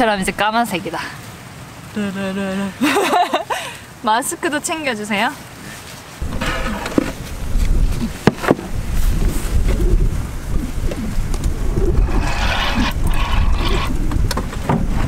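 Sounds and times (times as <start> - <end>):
rain jacket rustling: 5.7 - 10.0
plastic jug being pulled out: 6.2 - 9.8
wind rumbling on microphone: 6.2 - 15.0.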